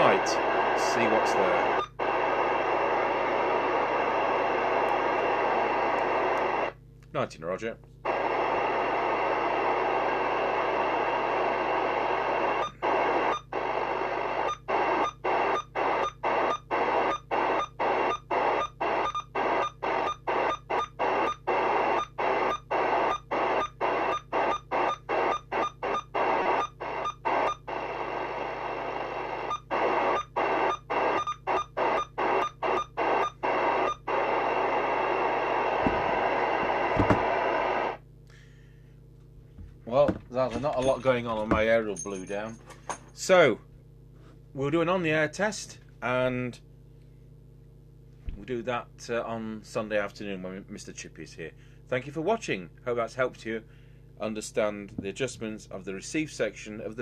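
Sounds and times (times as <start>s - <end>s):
radio receiver hiss: 0.0s - 6.8s, 8.1s - 38.0s.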